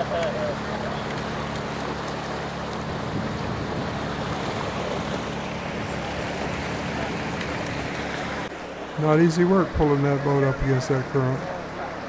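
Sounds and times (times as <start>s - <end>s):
small generator engine humming: 0.0s - 8.5s
river water rushing: 0.0s - 12.0s.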